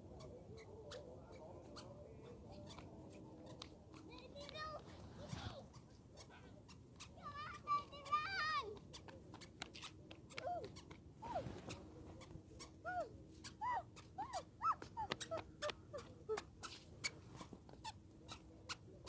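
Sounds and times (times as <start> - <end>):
squeaky shoes squeaking: 0.2 - 4.6, 8.8 - 18.8.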